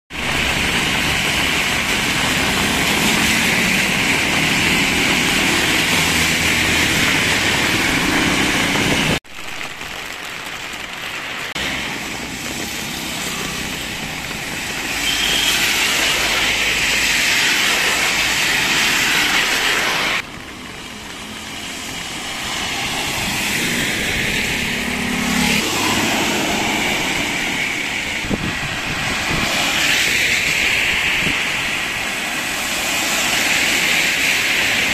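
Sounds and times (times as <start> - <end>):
rain hissing: 0.1 - 34.9
tyres swishing through water: 11.2 - 34.9.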